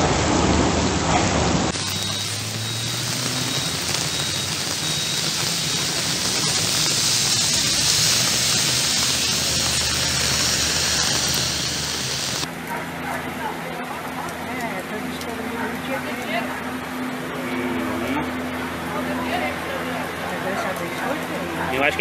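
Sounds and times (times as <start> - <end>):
heavy rain hissing: 0.0 - 12.5
running floodwater: 0.0 - 22.0.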